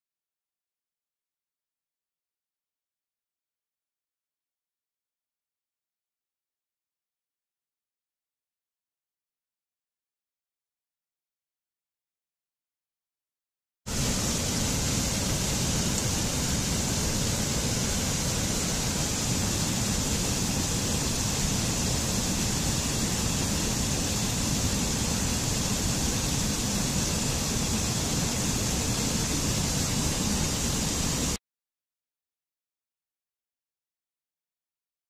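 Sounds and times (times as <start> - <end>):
waterfall rushing: 13.9 - 31.4.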